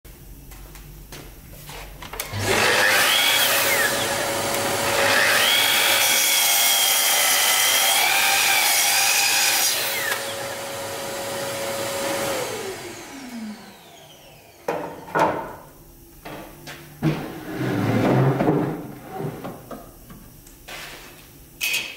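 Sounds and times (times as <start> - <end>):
miter saw cutting wood: 2.3 - 14.6.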